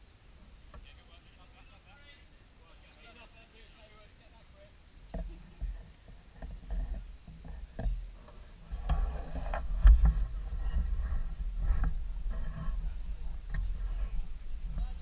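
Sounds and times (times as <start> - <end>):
wind rumbling on microphone: 5.0 - 15.0.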